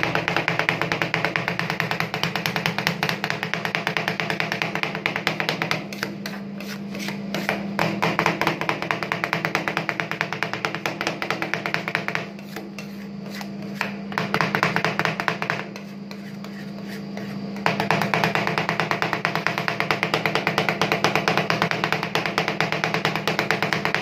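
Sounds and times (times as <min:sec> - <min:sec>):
steady low hum: 0:00.0 - 0:20.3.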